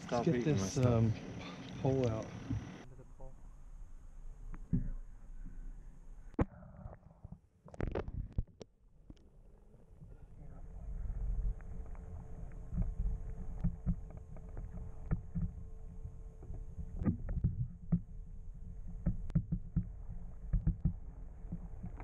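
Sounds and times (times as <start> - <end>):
faint steady hum: 0.0 - 22.0
low underwater rumble: 0.0 - 22.0
sharp knocks and clicks: 13.6 - 15.6, 16.4 - 18.2, 18.8 - 22.0.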